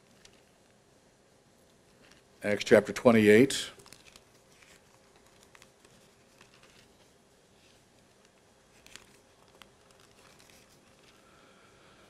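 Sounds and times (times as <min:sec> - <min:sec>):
thin pages being turned: 0:03.8 - 0:11.2.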